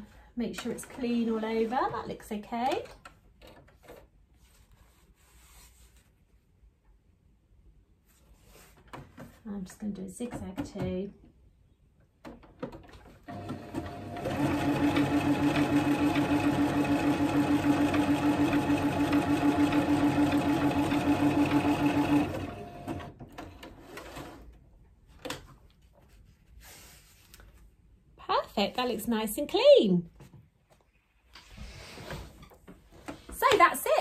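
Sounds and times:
sewing machine stitching: 0:13.3 - 0:23.2.

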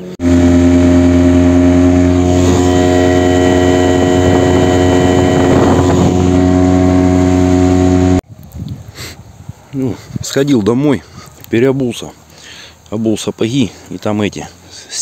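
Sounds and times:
outboard motor running: 0:00.0 - 0:08.2.

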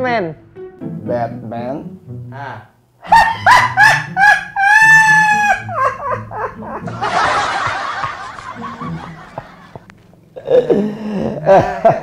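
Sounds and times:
man cackling laugh: 0:03.0 - 0:09.8, 0:10.4 - 0:12.0.

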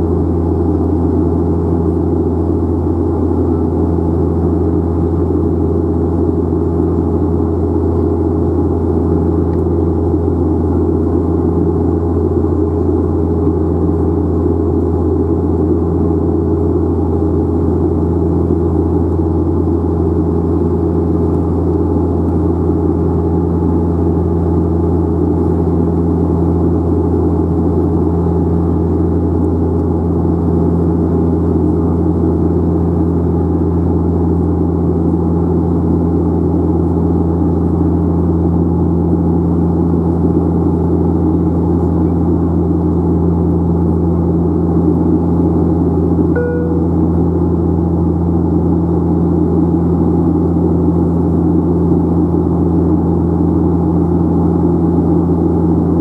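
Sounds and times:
turboprop engine cabin drone: 0:00.0 - 0:56.0.

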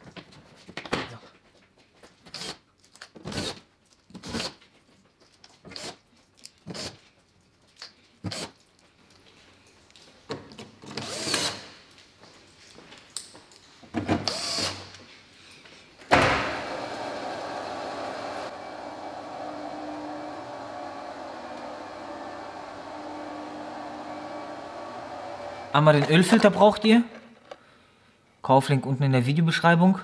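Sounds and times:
cordless drill running: 0:10.9 - 0:11.7, 0:14.2 - 0:14.9, 0:16.4 - 0:25.8
car lift humming: 0:16.1 - 0:26.0.

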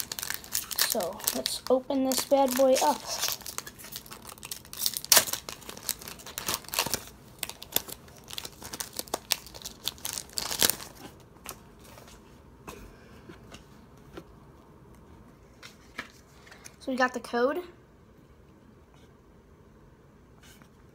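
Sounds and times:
foil wrapper ripping and crinkling: 0:00.0 - 0:11.2.

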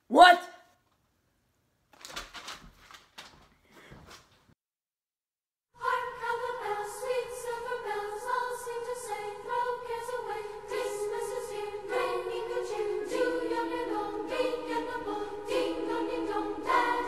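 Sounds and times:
choir singing held chords: 0:05.8 - 0:17.0.

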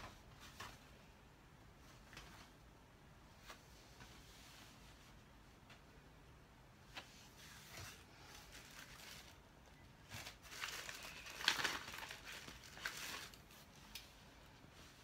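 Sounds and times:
plastic crinkling and rustling: 0:07.4 - 0:15.0.

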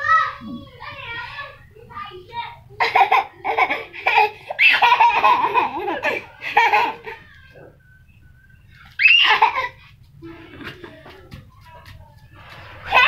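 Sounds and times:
toddler laughing: 0:02.8 - 0:07.4, 0:09.0 - 0:09.8
toddler squealing: 0:08.9 - 0:09.6.

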